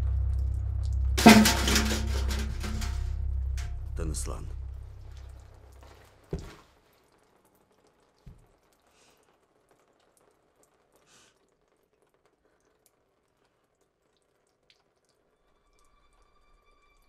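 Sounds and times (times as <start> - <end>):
water drips: 4.9 - 16.3.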